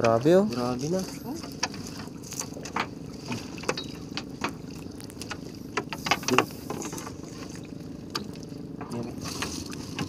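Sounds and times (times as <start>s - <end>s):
small boat engine idling: 0.0s - 10.0s
sharp knocks and clicks: 1.4s - 7.1s.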